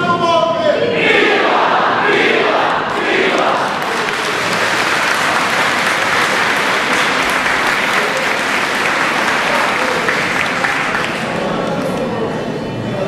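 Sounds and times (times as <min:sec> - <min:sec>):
crowd applauding: 0:02.5 - 0:12.3.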